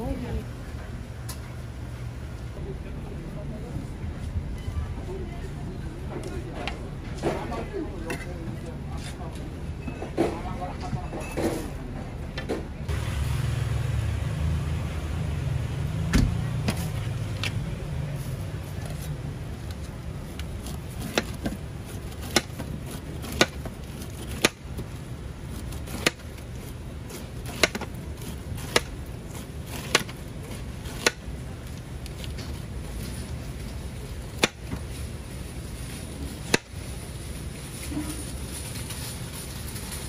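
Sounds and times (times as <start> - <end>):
knife peeling pineapple: 18.3 - 32.4.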